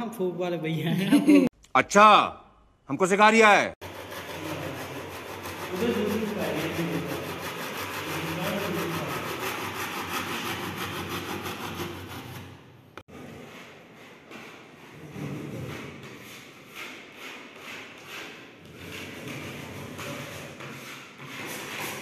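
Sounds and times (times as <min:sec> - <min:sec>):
knife sawing through cardboard: 0:03.8 - 0:12.6.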